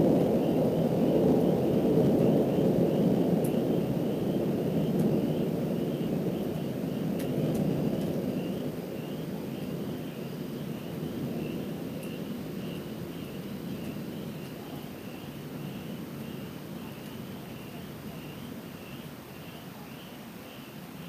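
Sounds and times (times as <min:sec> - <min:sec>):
distant thunder rumbling: 0:00.0 - 0:20.1.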